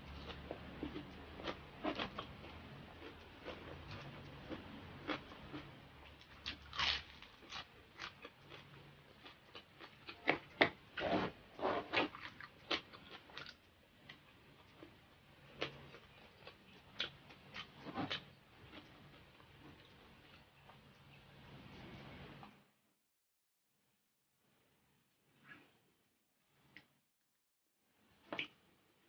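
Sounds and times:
crunching crispy food: 3.0s - 10.6s.

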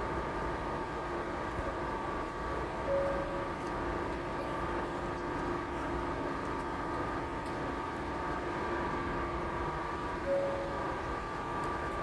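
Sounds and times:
machinery hum with held tones: 0.0s - 12.0s
brief higher tone: 2.9s - 3.6s, 10.2s - 10.8s.

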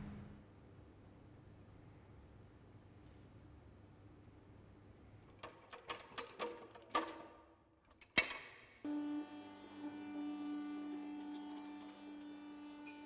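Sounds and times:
electric motor humming: 8.9s - 13.0s.

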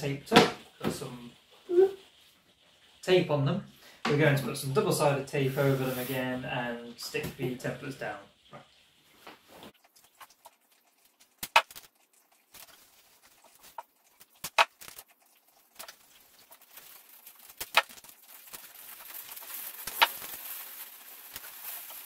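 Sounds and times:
faint high hiss: 3.0s - 8.3s.

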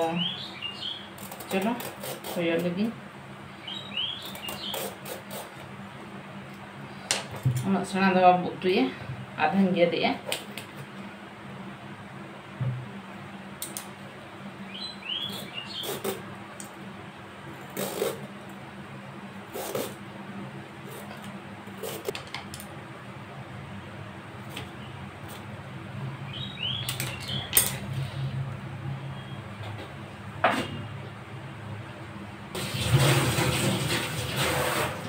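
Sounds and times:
peeler scraping gourd skin: 1.1s - 2.8s, 4.2s - 5.7s, 15.2s - 16.2s, 17.6s - 18.3s, 19.5s - 20.0s, 20.8s - 22.2s.

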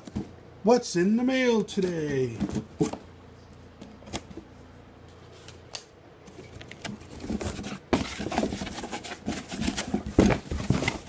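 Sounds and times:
cardboard rustling and scraping: 2.3s - 3.1s, 6.3s - 11.0s.

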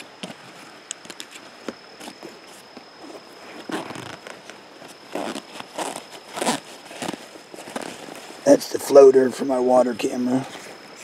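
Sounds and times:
nylon fabric rustling: 0.2s - 8.5s
zipper being pulled open: 3.6s - 8.2s.

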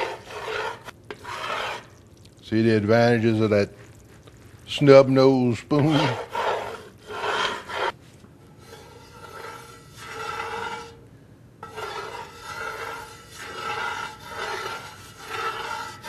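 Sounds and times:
metal spoon scraping pot: 0.0s - 2.0s, 5.8s - 8.0s, 8.6s - 11.0s, 11.6s - 16.0s.

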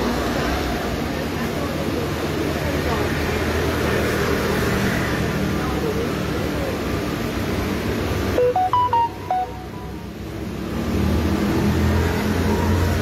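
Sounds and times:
street traffic noise: 0.0s - 13.0s
electronic beeps: 8.4s - 10.1s.

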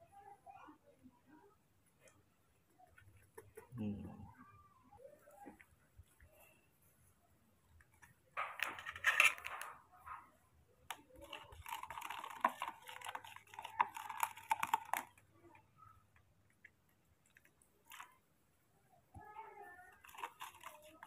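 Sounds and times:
metal spoon scraping plastic cup: 8.6s - 9.8s, 11.2s - 15.2s, 19.9s - 21.0s.

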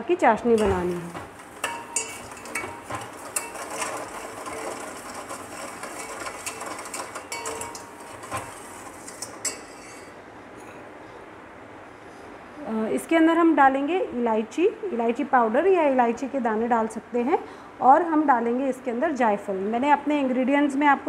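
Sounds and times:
metal spoon scraping a pan: 0.6s - 10.2s.

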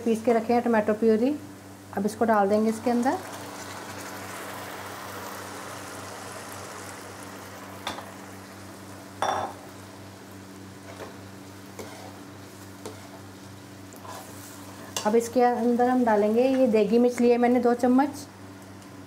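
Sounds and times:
sauce sizzling in oil: 1.6s - 16.1s
spoon scraping pan: 11.7s - 13.2s, 14.0s - 15.1s.

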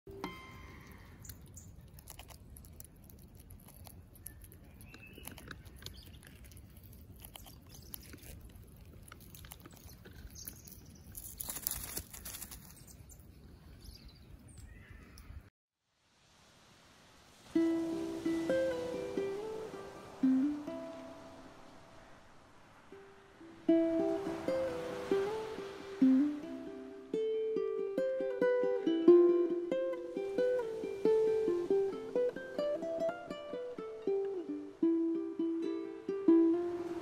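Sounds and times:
squirrel gnawing a nut: 0.8s - 13.1s
rustling: 0.9s - 13.8s.

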